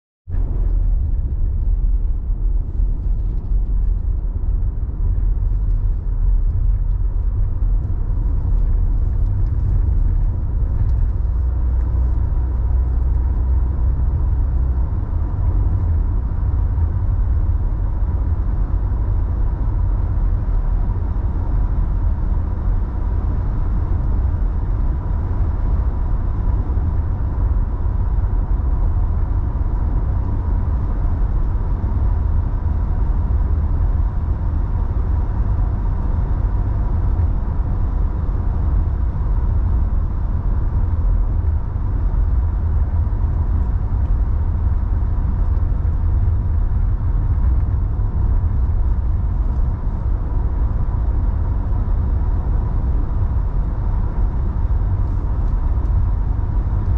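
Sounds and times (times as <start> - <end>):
car driving rumble: 0.3 - 56.9.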